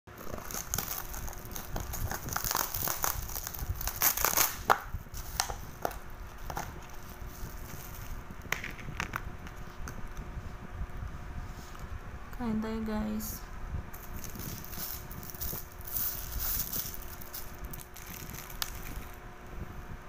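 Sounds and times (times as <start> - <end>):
plastic wrapping crinkling: 0.2 - 9.8, 14.0 - 19.2.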